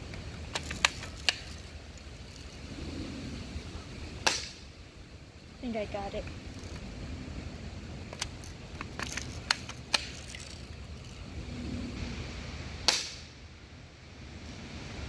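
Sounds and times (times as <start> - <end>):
toy gun clicks: 0.5 - 1.7, 8.2 - 10.7
toy blaster firing crack: 4.2 - 4.6, 8.2 - 10.4, 12.9 - 13.3.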